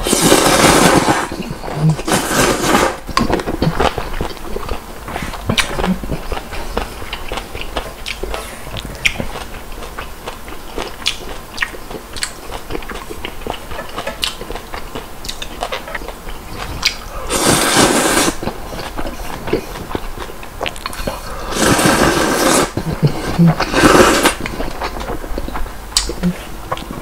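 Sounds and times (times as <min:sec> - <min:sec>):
slurping noodles: 0:00.0 - 0:04.0, 0:16.7 - 0:19.8, 0:20.9 - 0:25.0
wet chewing: 0:00.1 - 0:27.0.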